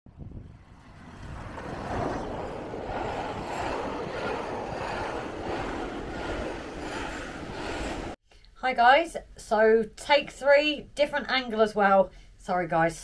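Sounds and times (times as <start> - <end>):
wind on microphone: 0.0 - 8.2
train wheels on rails: 0.7 - 8.2.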